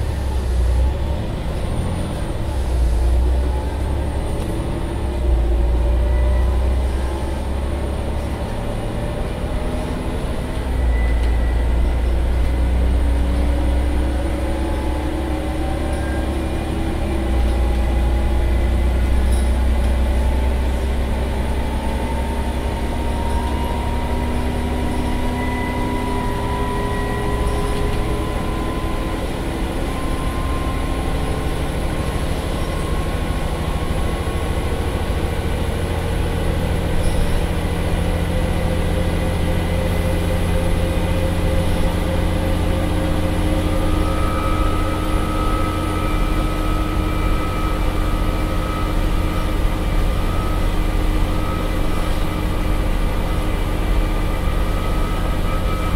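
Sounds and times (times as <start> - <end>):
bus diesel engine accelerating: 0.0 - 55.9.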